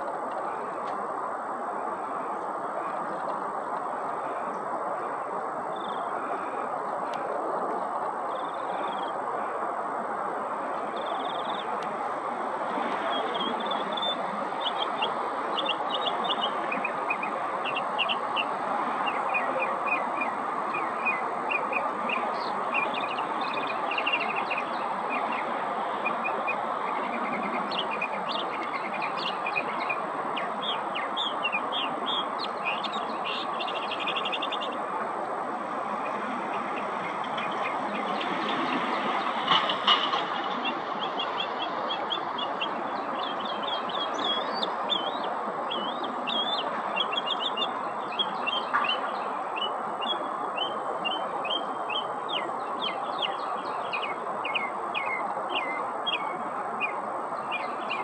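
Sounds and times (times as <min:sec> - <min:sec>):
steady background noise: 0:00.0 - 0:58.0
mockingbird singing: 0:13.0 - 0:34.8.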